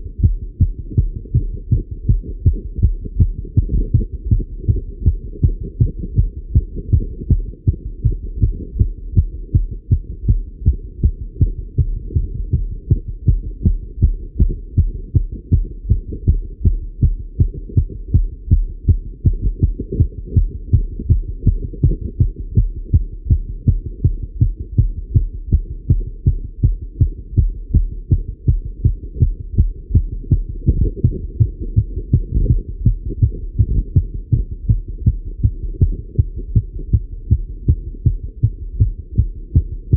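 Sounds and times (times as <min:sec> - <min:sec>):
fast heartbeat through stethoscope: 0:00.0 - 0:39.9.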